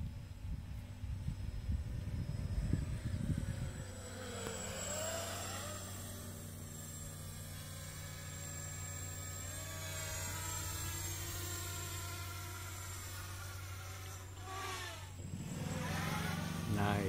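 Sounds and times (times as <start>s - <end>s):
gusty low rumble: 0.0s - 4.3s
quadcopter motors whining: 0.0s - 17.0s.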